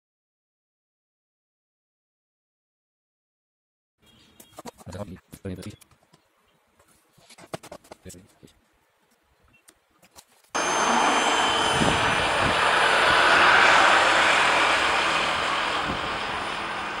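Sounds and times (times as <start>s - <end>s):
model plane motor whine: 10.6s - 17.0s.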